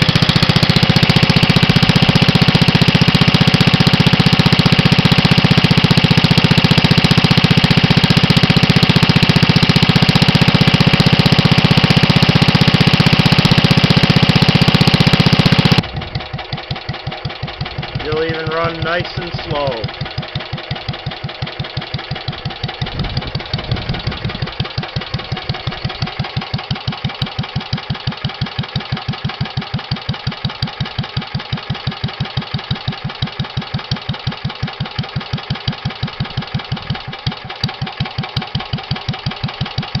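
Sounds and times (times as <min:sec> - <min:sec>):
utility engine idling: 0:00.0 - 0:40.0.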